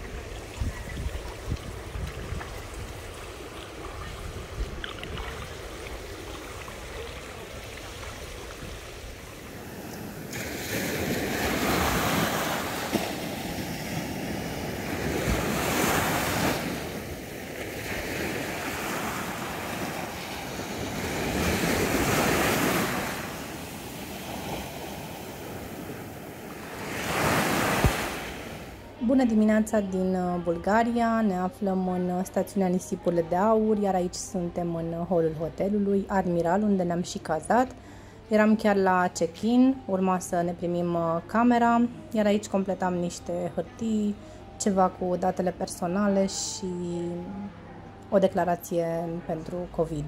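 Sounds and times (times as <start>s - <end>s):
wind buffeting microphone: 0.0s - 10.2s
sea surf breaking: 5.3s - 28.8s.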